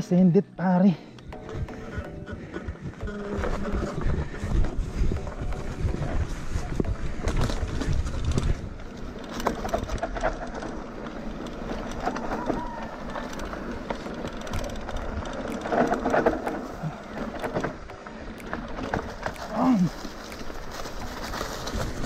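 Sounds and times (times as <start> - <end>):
bike tyres on dirt trail: 0.8 - 22.0
knocks and rattles over bumps: 1.1 - 22.0
wind rumbling on microphone: 1.2 - 22.0.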